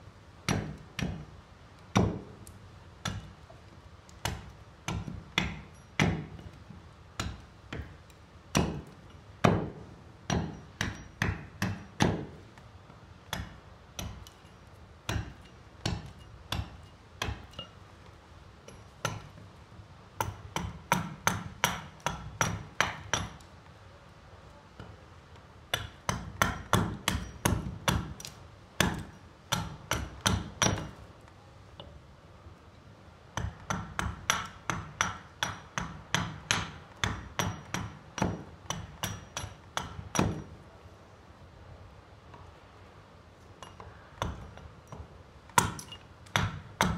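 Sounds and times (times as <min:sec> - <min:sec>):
hatchet chopping wood: 0:00.4 - 0:03.5, 0:04.1 - 0:12.6, 0:13.2 - 0:17.8, 0:18.6 - 0:19.4, 0:20.2 - 0:23.5, 0:25.7 - 0:31.1, 0:33.3 - 0:40.6, 0:43.6 - 0:46.9.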